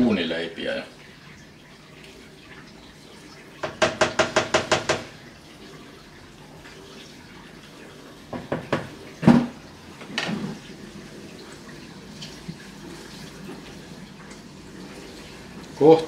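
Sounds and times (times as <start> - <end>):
wooden spoon knocking on metal pot: 3.6 - 5.2.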